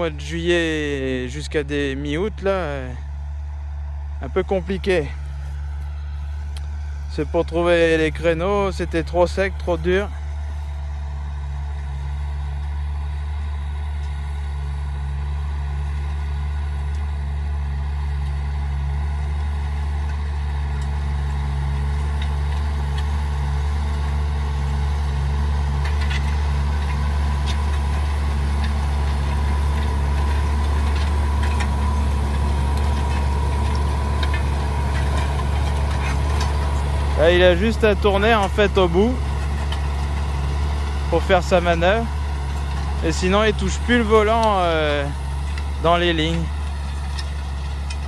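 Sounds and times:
tractor engine running: 0.0s - 48.0s
steady whine: 25.9s - 48.0s.

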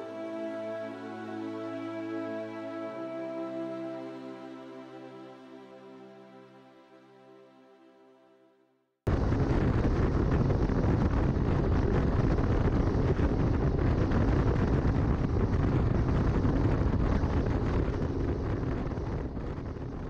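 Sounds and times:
wind buffeting microphone: 9.1s - 20.0s.

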